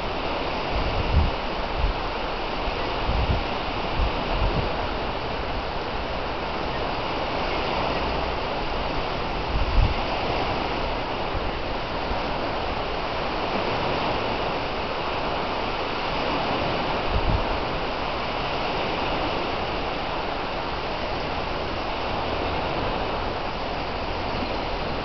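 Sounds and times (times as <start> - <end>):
small waves breaking on shore: 0.0 - 25.0.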